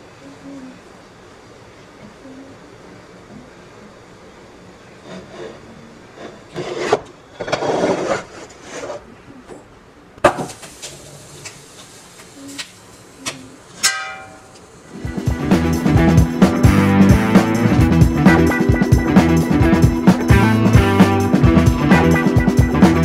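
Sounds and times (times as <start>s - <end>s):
music: 14.9s - 23.0s.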